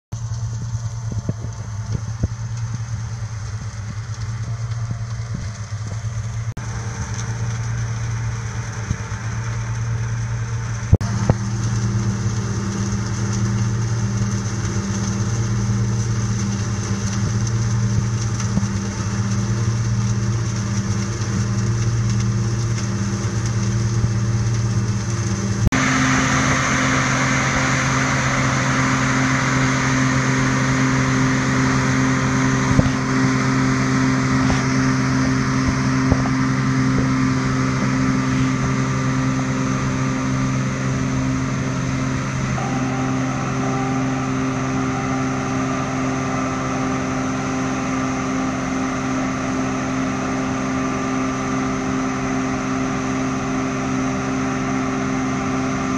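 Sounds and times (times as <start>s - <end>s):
harvester engines droning: 0.1s - 55.9s.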